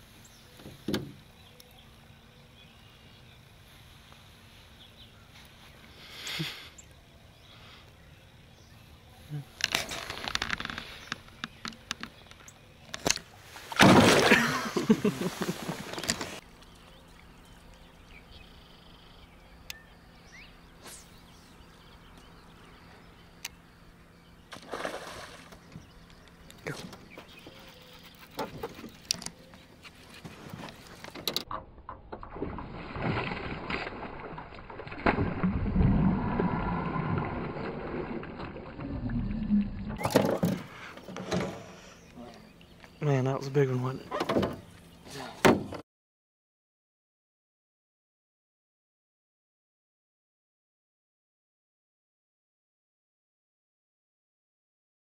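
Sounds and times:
boat low rumble: 0.0 - 45.4
fish splashing at surface: 24.5 - 25.6
knocks on boat: 45.4 - 45.8.

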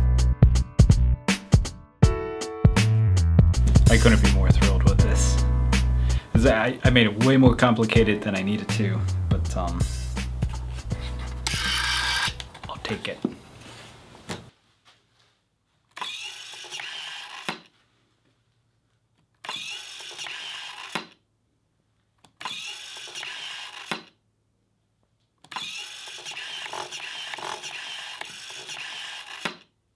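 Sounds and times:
servo motor whirring: 11.0 - 12.4, 16.0 - 17.6, 19.4 - 21.1, 22.4 - 24.0, 25.5 - 29.6.

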